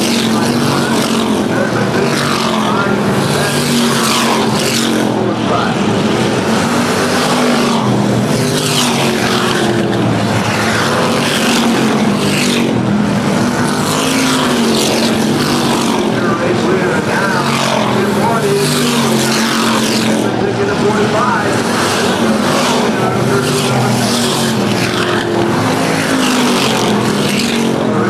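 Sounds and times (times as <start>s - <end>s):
race car engines din: 0.0s - 28.0s
race cars passing close by: 0.0s - 28.0s.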